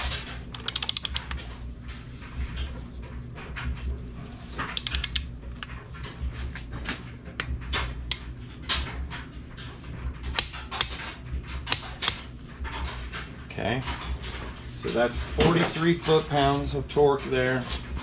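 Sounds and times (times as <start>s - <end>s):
steady low hum: 0.0s - 18.0s
torque wrench ratcheting: 0.5s - 1.3s, 4.8s - 5.2s.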